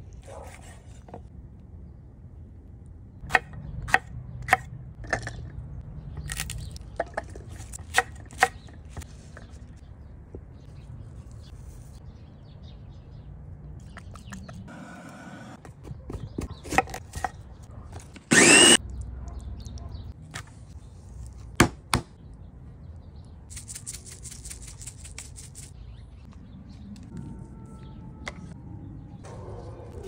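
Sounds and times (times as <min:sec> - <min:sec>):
electric food chopper whining: 0:18.2 - 0:18.8.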